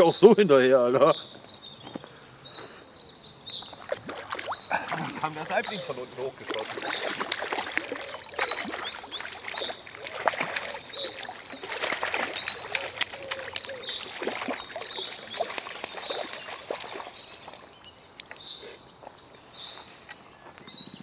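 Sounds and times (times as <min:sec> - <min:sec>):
birds chirping: 0:00.0 - 0:21.0
fish splashing in water: 0:03.6 - 0:17.8.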